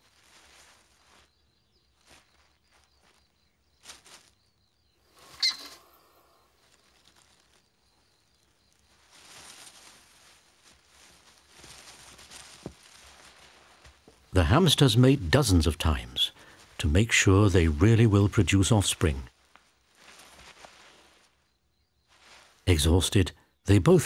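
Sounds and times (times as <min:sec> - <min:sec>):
hamsters scrabbling on sand: 0:00.0 - 0:14.8, 0:17.6 - 0:21.4.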